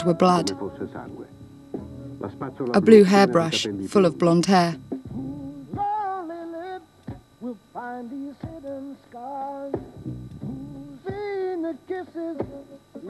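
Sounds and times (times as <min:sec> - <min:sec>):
woman singing slow melody: 0:00.0 - 0:00.9, 0:02.8 - 0:06.8.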